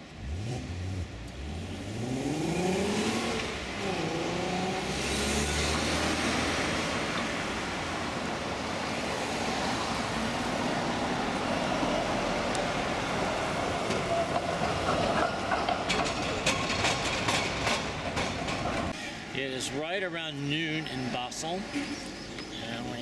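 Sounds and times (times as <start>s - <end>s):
car accelerating past: 0.2s - 13.6s
tram passing close: 3.1s - 23.0s
tyres rolling noise: 3.3s - 23.0s.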